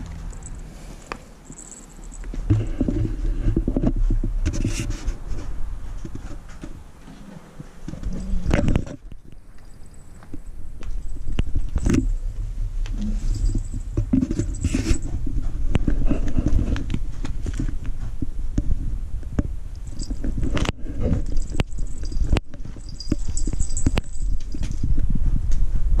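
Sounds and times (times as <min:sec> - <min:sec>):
footsteps: 0:00.0 - 0:12.1, 0:12.8 - 0:18.3, 0:19.9 - 0:26.0
camera handling rumble: 0:07.8 - 0:12.1.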